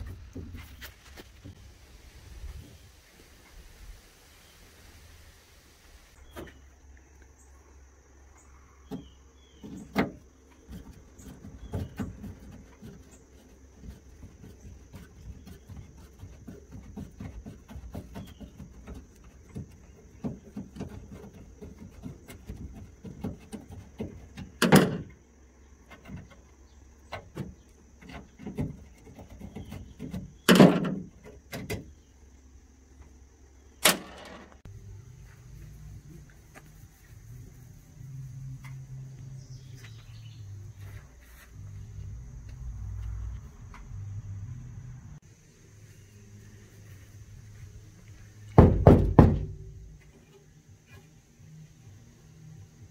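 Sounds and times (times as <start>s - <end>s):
loud knocks: 48.6s - 49.8s.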